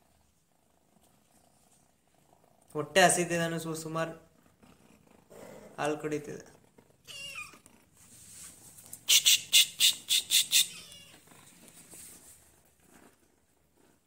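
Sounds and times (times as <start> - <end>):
faint rustling: 6.4 - 9.1, 10.9 - 14.0
cat crying: 7.0 - 7.6, 9.1 - 11.2.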